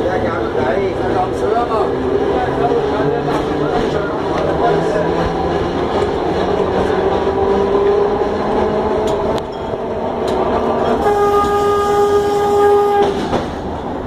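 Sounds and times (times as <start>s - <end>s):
tram rolling rumble: 0.0s - 14.0s
tram horn: 9.9s - 13.5s.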